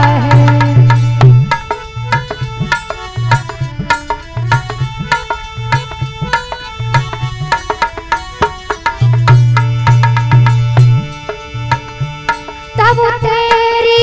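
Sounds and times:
person singing: 0.0s - 1.2s, 12.8s - 14.0s
deep bass notes: 0.0s - 7.5s, 8.3s - 13.2s
hand drums rhythm: 0.0s - 14.0s.

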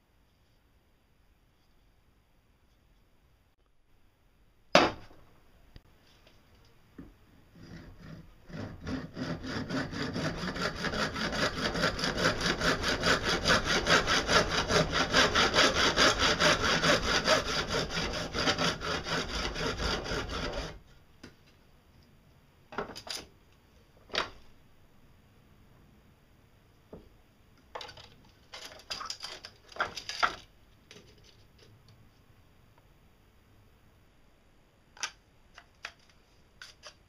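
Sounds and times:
hand saw cutting plastic pipe: 7.5s - 20.8s.

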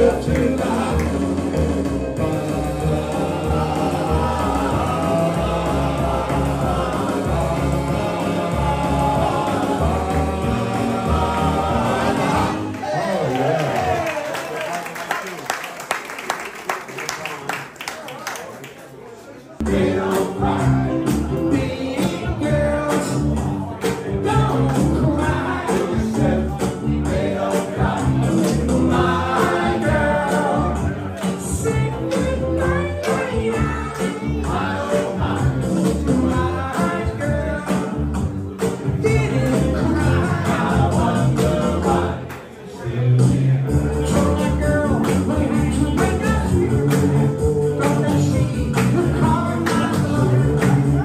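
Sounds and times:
amplified accompaniment with beat: 0.0s - 12.6s
vocal group singing in harmony: 0.0s - 13.0s, 19.6s - 51.0s.

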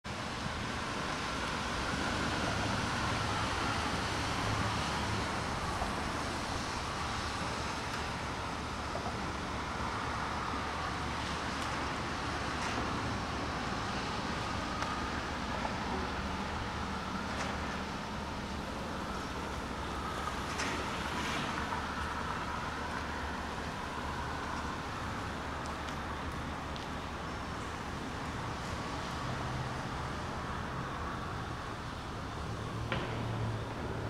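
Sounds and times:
diesel locomotive engine rumble: 0.1s - 34.0s.

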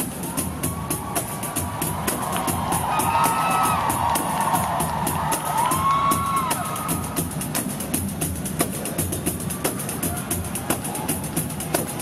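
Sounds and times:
audience cheering: 0.0s - 7.2s, 9.4s - 12.0s
pandeiros playing fast rhythm: 0.0s - 12.0s
long whoops: 2.4s - 7.0s.

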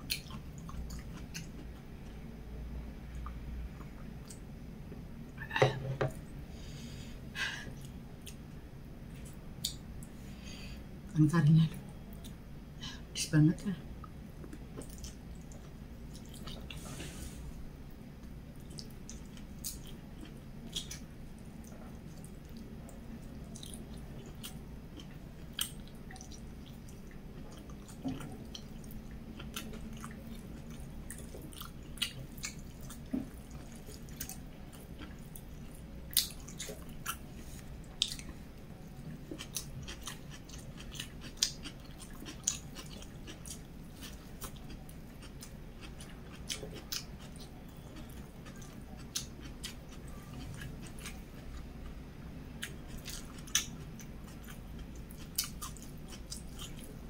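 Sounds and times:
steady low hum: 0.0s - 57.0s
close-up chewing: 21.6s - 51.6s, 52.6s - 57.0s.

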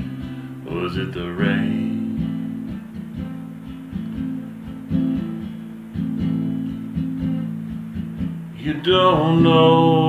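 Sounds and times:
person singing: 0.0s - 3.4s, 8.6s - 10.0s
acoustic guitar strumming: 0.0s - 10.0s.

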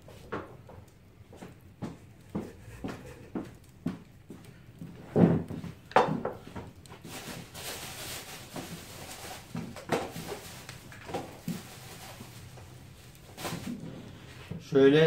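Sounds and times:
rustling: 6.4s - 14.6s.

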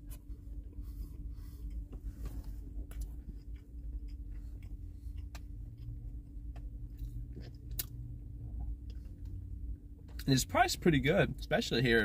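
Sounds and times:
person chewing biscuit: 0.0s - 9.4s
steady low hum: 0.0s - 12.0s.

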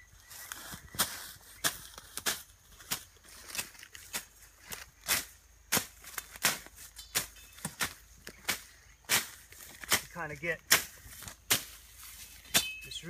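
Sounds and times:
machete swishing through grass: 0.4s - 10.1s, 10.7s - 13.0s.

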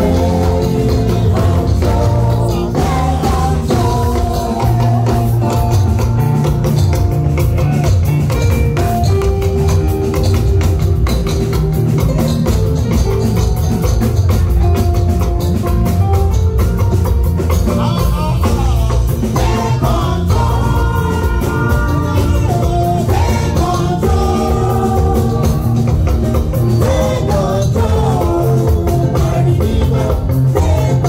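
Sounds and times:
person singing into microphone: 0.0s - 5.8s, 26.6s - 31.0s
upbeat gospel music: 0.0s - 31.0s.

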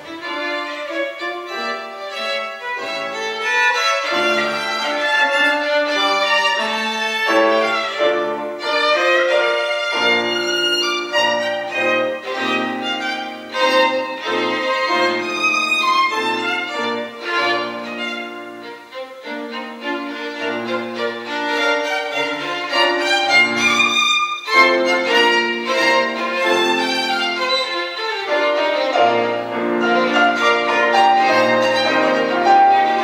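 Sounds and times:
fast violin melody: 0.0s - 33.0s
piano accompaniment: 0.0s - 33.0s.

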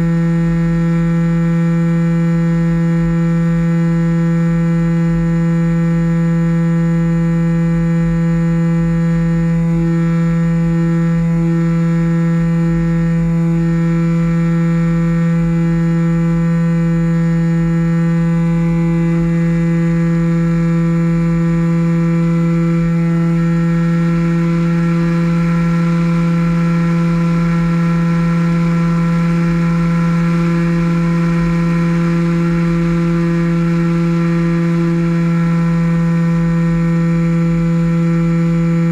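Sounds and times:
model airplane motor droning: 8.2s - 38.9s.

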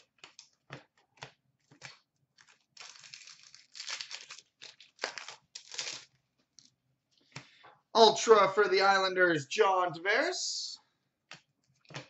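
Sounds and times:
wrapper crinkling and tearing: 2.4s - 6.2s.

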